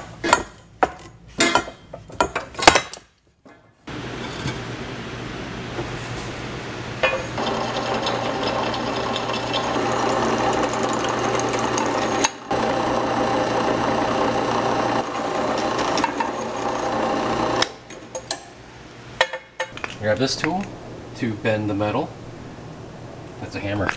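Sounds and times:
drill press cutting metal: 0:07.4 - 0:18.1.

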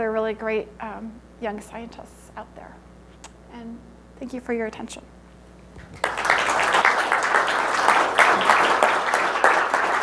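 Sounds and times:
audience applauding: 0:05.8 - 0:10.0.

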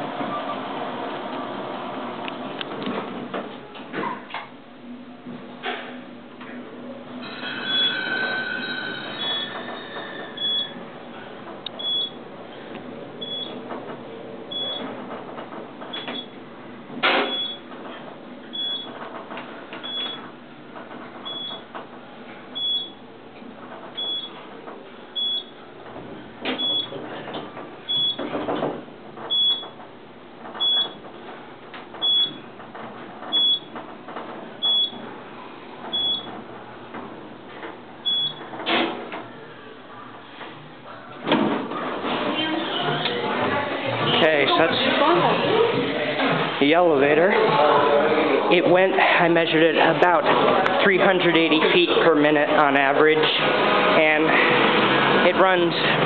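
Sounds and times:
elevator ride hum: 0:00.0 - 0:56.0
short high elevator beeps: 0:07.2 - 0:10.8, 0:11.8 - 0:12.2, 0:13.2 - 0:13.6, 0:14.5 - 0:14.8, 0:17.3 - 0:17.7, 0:18.5 - 0:19.0, 0:19.8 - 0:20.2, 0:21.3 - 0:21.6, 0:22.6 - 0:23.0, 0:24.0 - 0:24.4, 0:25.2 - 0:25.6, 0:26.6 - 0:26.9, 0:27.9 - 0:28.2, 0:29.3 - 0:29.8, 0:32.0 - 0:32.4, 0:33.3 - 0:33.7, 0:34.6 - 0:35.0, 0:35.9 - 0:36.3, 0:38.0 - 0:38.4.

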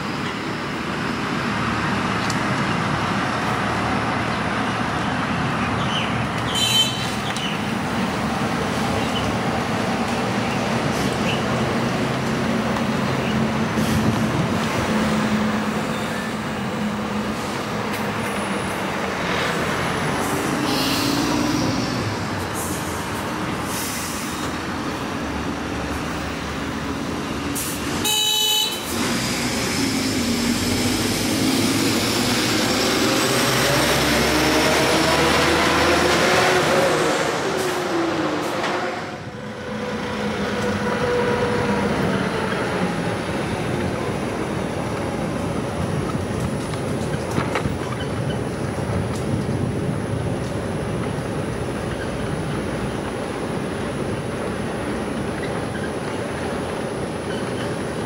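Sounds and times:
passing cars and trucks: 0:00.0 - 0:58.0
tyre and road noise: 0:00.0 - 0:58.0
car horn toot: 0:06.5 - 0:07.1, 0:28.0 - 0:28.9.

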